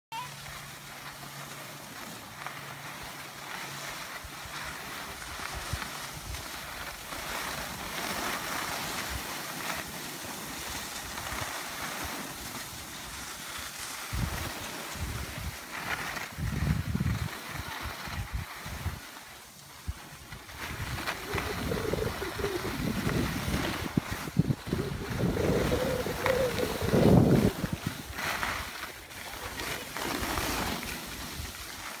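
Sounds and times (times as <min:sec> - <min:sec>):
skis hissing on snow: 0:00.2 - 0:32.0
wind buffeting microphone: 0:14.1 - 0:15.6, 0:16.3 - 0:19.0, 0:20.5 - 0:28.6.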